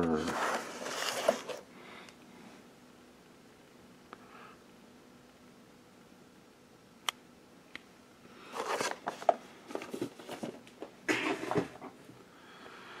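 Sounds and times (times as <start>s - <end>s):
cardboard boxes rustling: 0.1s - 1.7s, 8.5s - 12.0s.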